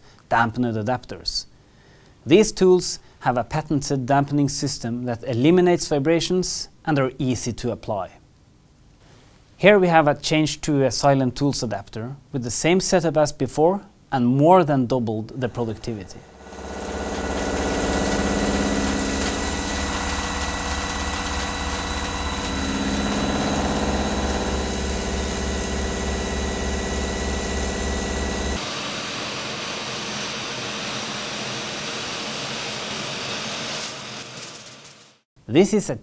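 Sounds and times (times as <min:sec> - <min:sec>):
lathe boring hiss: 0:15.5 - 0:34.2
milling machine cutting metal: 0:15.5 - 0:34.8.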